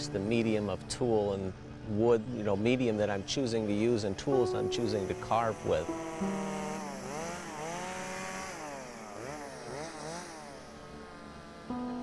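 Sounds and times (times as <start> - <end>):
chainsaw engine revving: 5.6 - 11.9.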